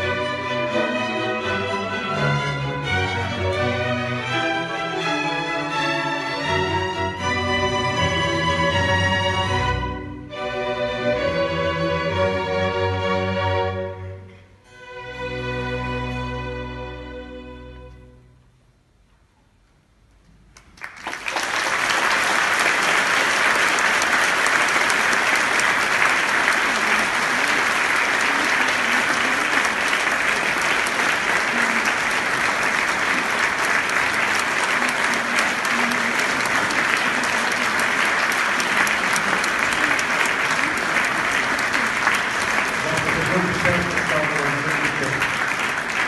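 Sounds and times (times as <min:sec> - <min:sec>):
audience applause: 0:00.0 - 0:10.0, 0:20.6 - 0:46.0.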